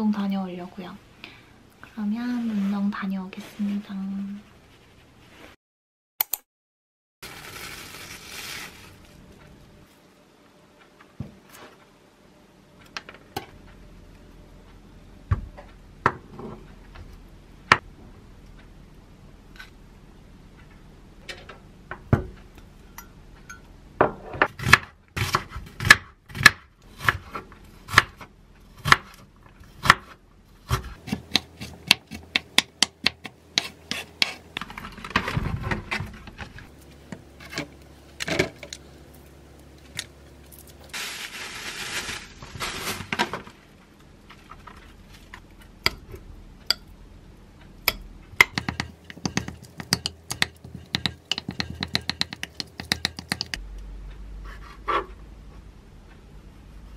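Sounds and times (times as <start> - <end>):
knife chopping on wooden board: 29.8 - 34.4, 48.4 - 53.6.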